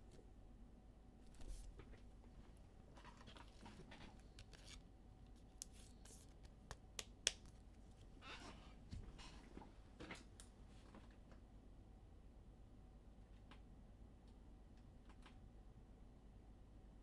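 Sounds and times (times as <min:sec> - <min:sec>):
faint rustles of cards: 0:01.2 - 0:11.3.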